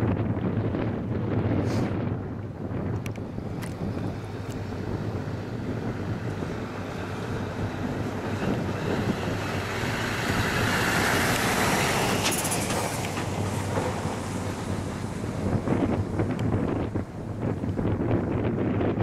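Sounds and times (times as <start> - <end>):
turboprop aircraft flying past: 4.0 - 18.6.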